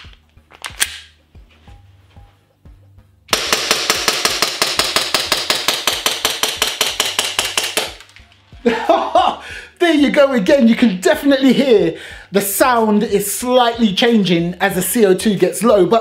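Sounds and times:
pistol slide racking clack: 0.0s - 1.1s
airsoft pistol shots: 3.3s - 8.0s.

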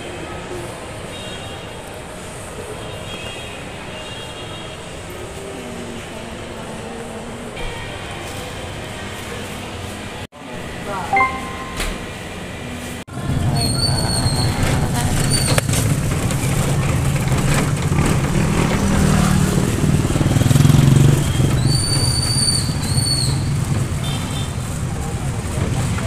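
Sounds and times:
short high whistle-like tones: 11.1s - 12.1s
small motorcycle engine running: 13.2s - 24.0s.

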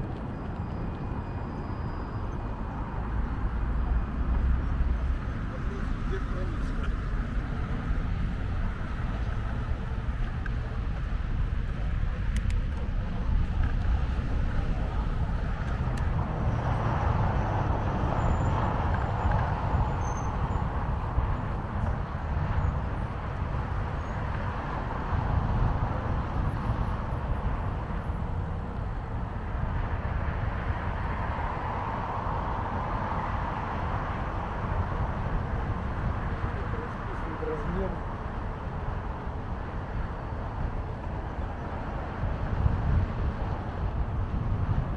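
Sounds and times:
cars and trucks passing: 0.0s - 44.9s.

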